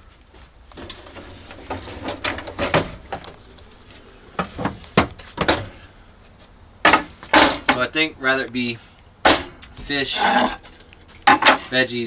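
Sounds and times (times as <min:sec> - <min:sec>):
wooden knocks and clatters: 0:00.7 - 0:03.7, 0:06.8 - 0:07.8, 0:11.2 - 0:11.7.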